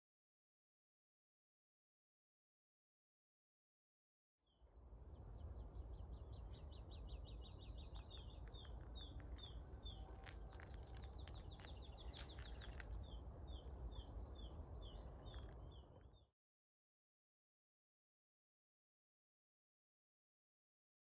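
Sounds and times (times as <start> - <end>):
songbirds singing trills: 4.5 - 16.3.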